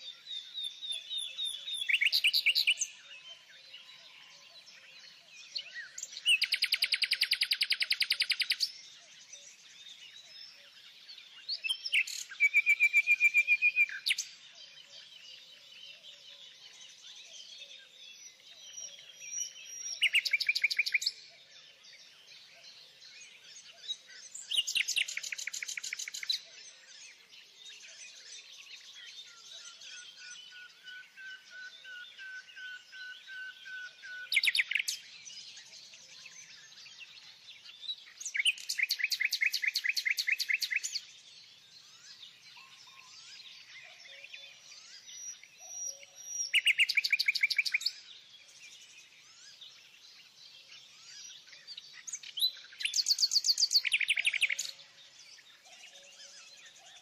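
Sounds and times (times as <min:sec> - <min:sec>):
faint bird chirping: 0:00.0 - 0:57.0
songbird trilled phrases: 0:23.7 - 0:26.6, 0:28.5 - 0:41.2, 0:41.8 - 0:48.0, 0:48.6 - 0:57.0.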